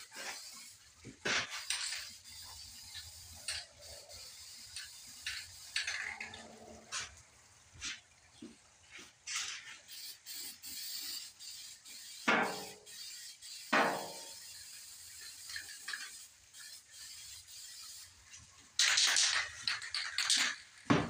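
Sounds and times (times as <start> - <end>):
spray can rattling: 0.0 - 7.2, 9.2 - 21.0
spray paint hissing: 0.0 - 7.2, 9.0 - 20.9.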